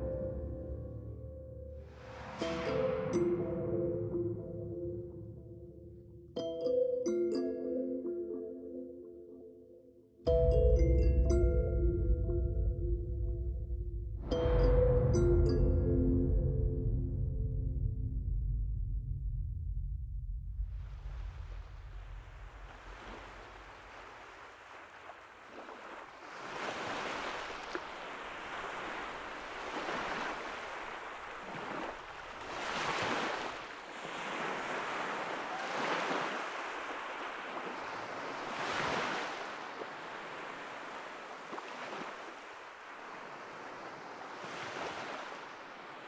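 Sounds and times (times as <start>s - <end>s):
sea surf on rocky shore: 21.1s - 46.0s.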